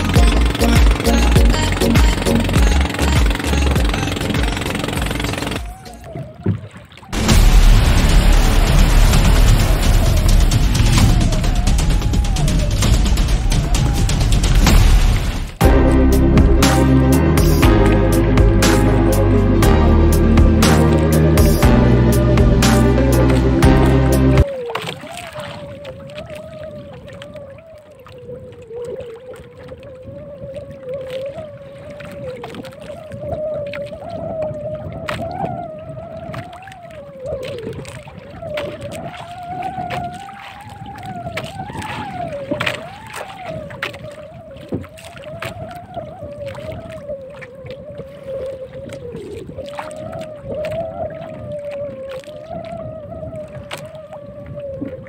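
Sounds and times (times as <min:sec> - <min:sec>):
boat engine running: 0:00.0 - 0:06.4, 0:07.1 - 0:24.4
water rumble: 0:00.0 - 0:55.0
wind noise: 0:29.6 - 0:55.0.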